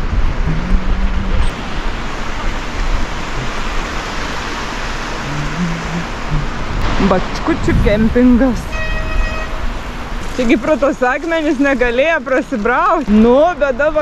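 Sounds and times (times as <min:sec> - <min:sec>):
wind blowing across microphone: 0:00.0 - 0:14.0.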